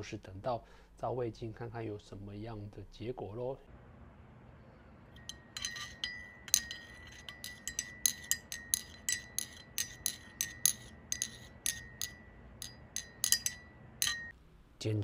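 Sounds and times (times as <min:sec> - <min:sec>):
glass rod clinking in ceramic mug: 0:05.2 - 0:14.3.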